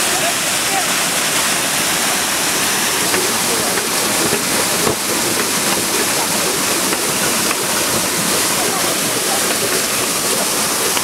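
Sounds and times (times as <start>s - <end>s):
water rushing through mill: 0.0s - 11.0s.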